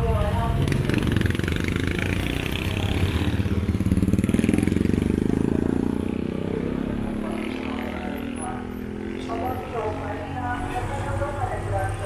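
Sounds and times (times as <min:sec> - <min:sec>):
motorcycle engine passing: 0:00.0 - 0:12.0.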